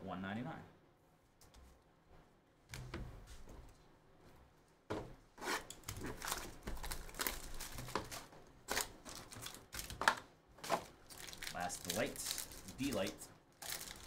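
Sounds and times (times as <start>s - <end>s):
foil wrapping crinkling: 5.9s - 14.0s.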